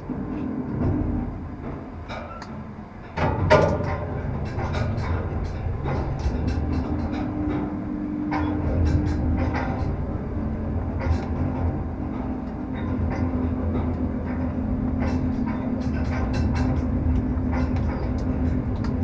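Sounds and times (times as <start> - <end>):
crane drive humming: 0.0 - 19.0
scattered clicks: 11.0 - 19.0.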